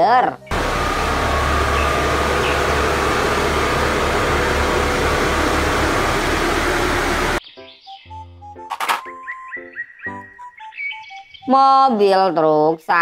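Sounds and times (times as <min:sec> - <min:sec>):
road roller diesel engine drone: 0:00.5 - 0:07.4.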